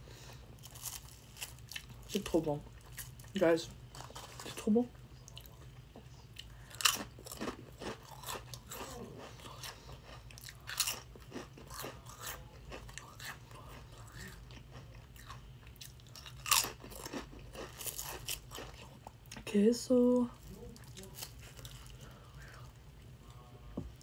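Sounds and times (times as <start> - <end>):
crunchy chewing: 0.6 - 4.6, 5.3 - 19.4, 20.4 - 23.4
crunchy chip bites: 6.7 - 18.9.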